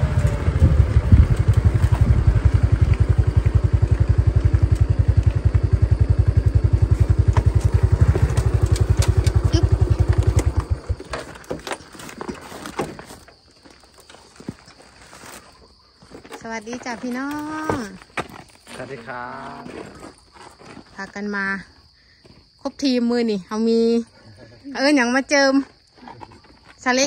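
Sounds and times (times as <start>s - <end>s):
motorcycle engine running: 0.0s - 11.8s.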